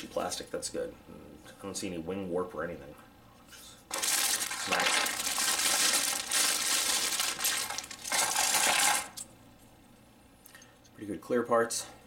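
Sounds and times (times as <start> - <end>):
plastic bag crinkling: 3.9 - 9.2
plastic parts clattering: 3.9 - 9.2.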